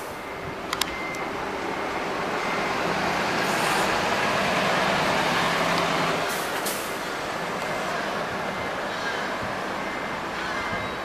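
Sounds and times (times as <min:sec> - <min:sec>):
bus driving past: 0:00.0 - 0:11.0.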